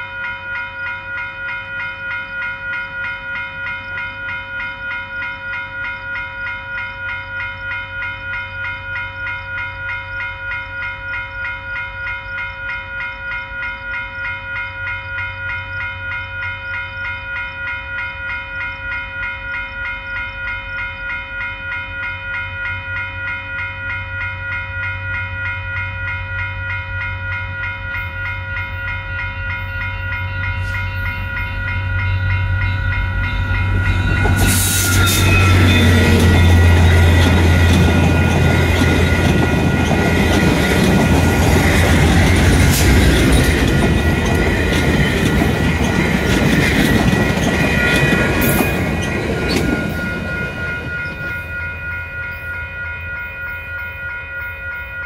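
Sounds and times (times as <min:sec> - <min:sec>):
level-crossing bell ringing: 0:00.0 - 0:55.0
diesel locomotive engines rumbling: 0:24.1 - 0:54.9
train wheels clattering: 0:29.7 - 0:51.6.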